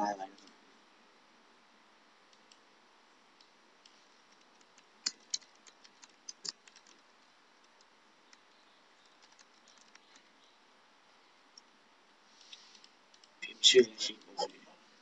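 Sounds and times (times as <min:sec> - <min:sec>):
keyboard keys clicking: 0:04.3 - 0:07.0, 0:08.3 - 0:10.3.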